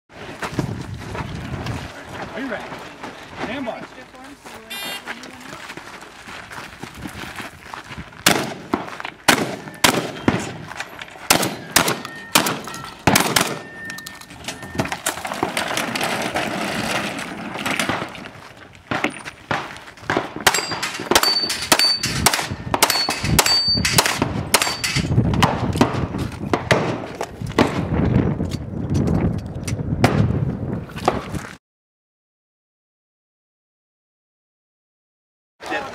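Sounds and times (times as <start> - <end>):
steel targets ringing: 9.6 - 14.9, 20.5 - 25.1.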